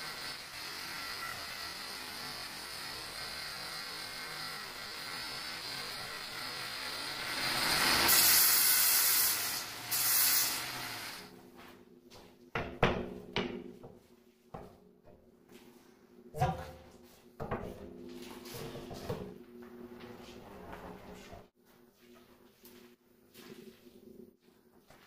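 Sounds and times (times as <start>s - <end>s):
angle grinder cutting stone: 0.0s - 11.3s.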